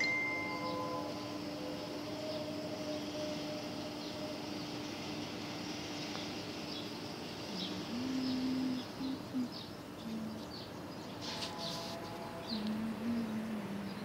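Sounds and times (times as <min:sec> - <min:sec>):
small birds chirping: 0:03.8 - 0:14.0
dove cooing: 0:07.6 - 0:10.4.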